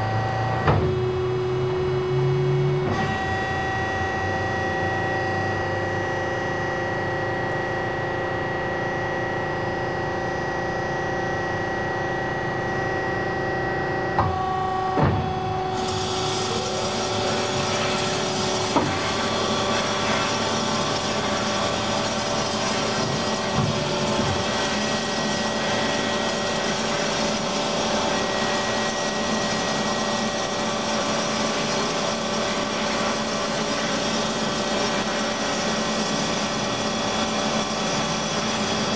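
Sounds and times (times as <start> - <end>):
bandsaw machine hum: 9.7 - 38.9
drive hiss and rising whine: 14.8 - 38.9.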